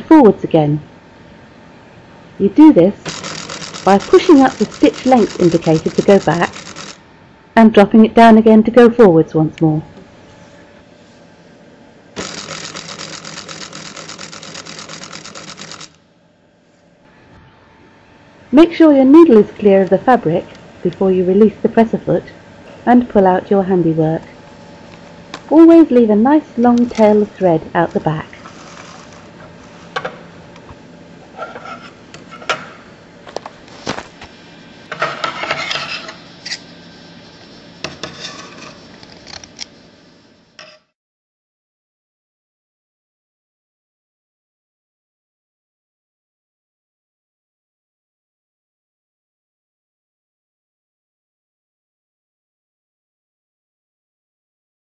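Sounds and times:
faint steady hum: 0.0s - 40.8s
sewing machine running: 3.0s - 7.0s, 12.2s - 16.0s, 28.4s - 29.3s.

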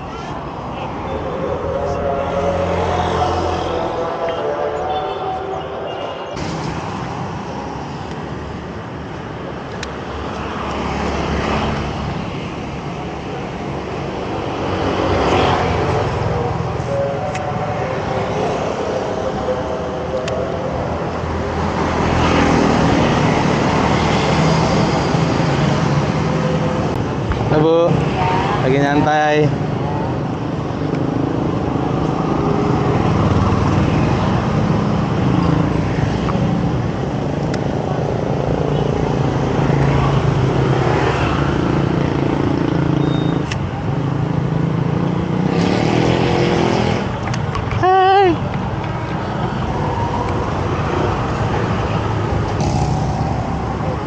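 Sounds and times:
motor scooters passing: 0.0s - 8.0s, 10.0s - 54.0s
street traffic noise: 0.0s - 54.0s
scooter engine revving: 52.4s - 53.7s.

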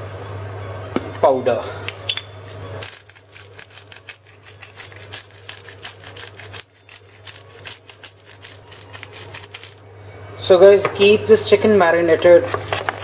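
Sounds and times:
low steady hum: 0.0s - 13.0s
spice shaker rattling: 2.5s - 9.8s.

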